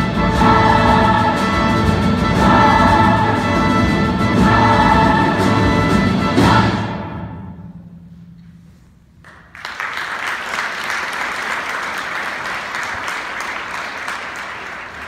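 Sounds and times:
orchestra and choir chord: 0:00.0 - 0:07.6
audience applause: 0:09.3 - 0:15.0.

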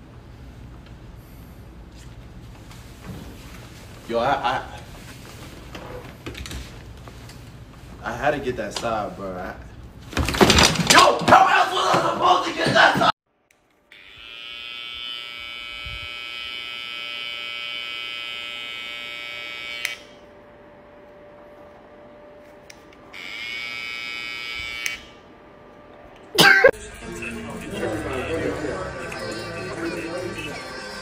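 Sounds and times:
hair trimmer buzzing: 0:13.9 - 0:20.1, 0:23.2 - 0:25.2.

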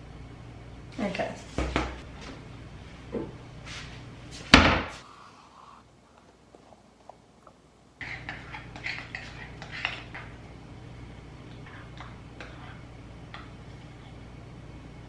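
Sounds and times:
cabinet door banging shut: 0:04.5 - 0:05.0
spoon stirring in a bowl: 0:08.0 - 0:10.4, 0:11.6 - 0:12.8.

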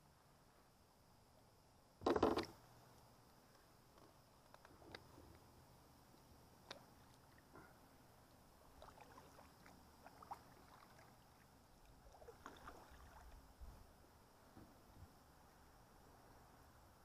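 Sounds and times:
kayak gear clicks and knocks: 0:02.0 - 0:02.6.

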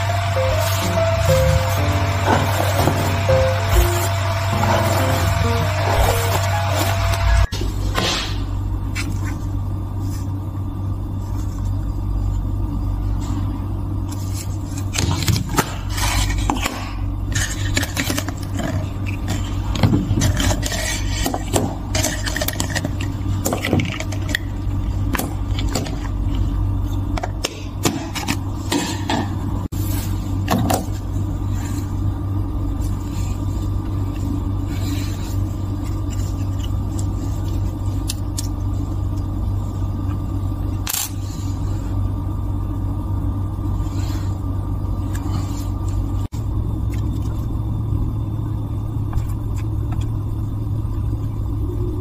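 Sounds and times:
steady low hum: 0:00.0 - 0:52.0.

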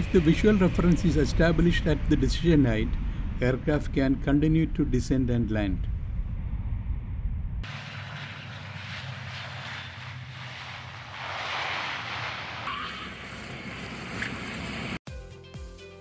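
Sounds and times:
jet airliner engines: 0:00.0 - 0:15.0
rushing air: 0:05.9 - 0:15.0.

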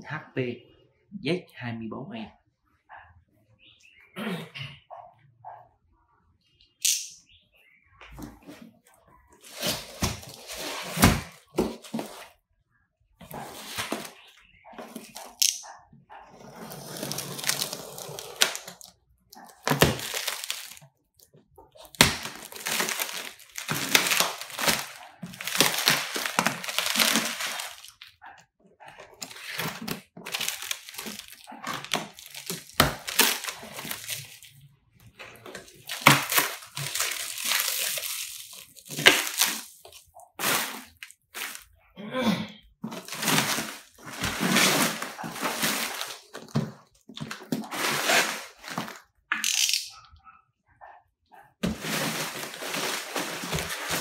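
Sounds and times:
plastic wrap crinkling and tearing: 0:09.4 - 0:12.2, 0:16.8 - 0:20.8, 0:21.8 - 0:28.1, 0:29.2 - 0:41.7, 0:42.8 - 0:49.8, 0:51.6 - 0:54.0.

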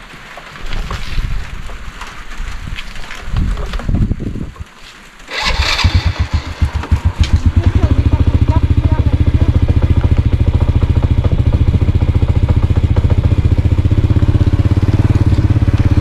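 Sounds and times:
motorcycle engine starting and idling: 0:05.2 - 0:16.0.

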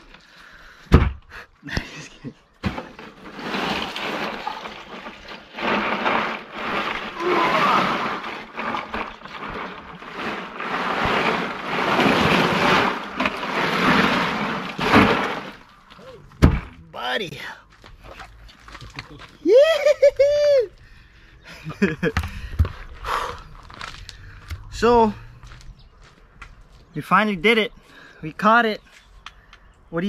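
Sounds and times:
rushing and scraping: 0:02.6 - 0:19.9, 0:21.7 - 0:28.1.

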